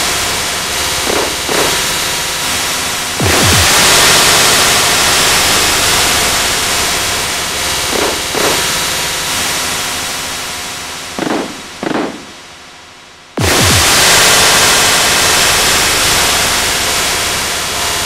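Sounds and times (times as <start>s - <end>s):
loud static-like hiss: 0.0s - 18.0s.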